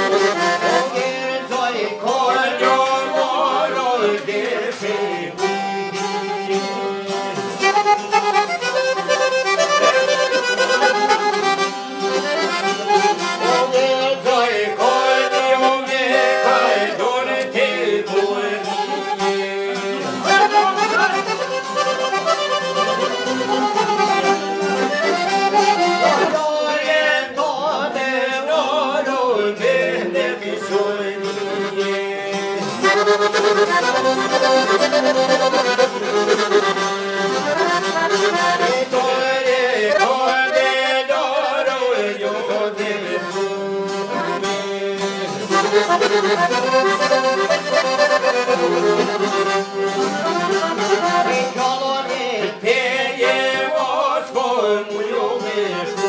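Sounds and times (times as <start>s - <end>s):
man singing: 0.0s - 7.7s, 12.8s - 21.5s, 25.8s - 36.1s, 38.2s - 47.6s, 50.8s - 56.0s
accordion: 0.0s - 56.0s
strummed lutes: 0.0s - 56.0s.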